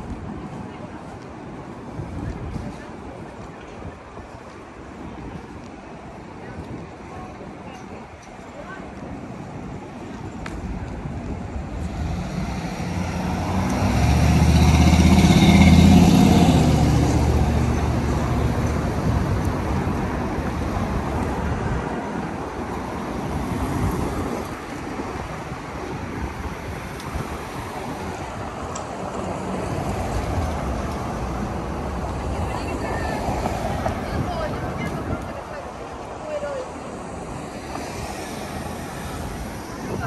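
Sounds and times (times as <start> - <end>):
steady traffic noise: 0.0 - 40.0
heavy vehicle engine passing: 11.9 - 21.4.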